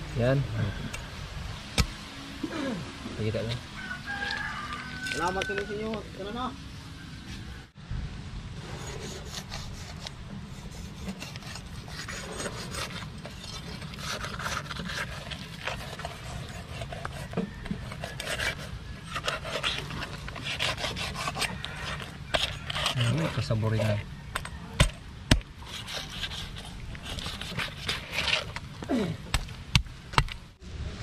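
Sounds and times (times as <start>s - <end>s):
knife sawing through fish skin: 8.6s - 24.0s, 24.8s - 28.6s.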